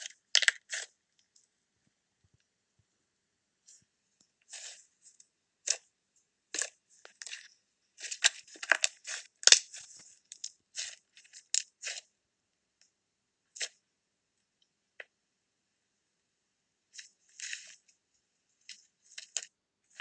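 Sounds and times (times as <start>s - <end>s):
slime crackling and clicking: 0.3s - 0.9s, 8.0s - 10.5s.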